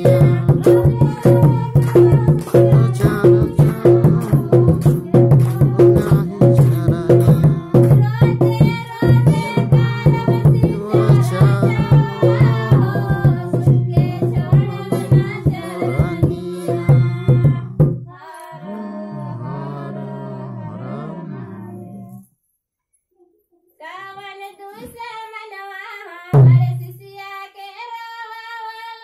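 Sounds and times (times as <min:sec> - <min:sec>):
tabla and percussion: 0:00.0 - 0:18.1, 0:26.3 - 0:27.1
man singing: 0:00.0 - 0:21.8.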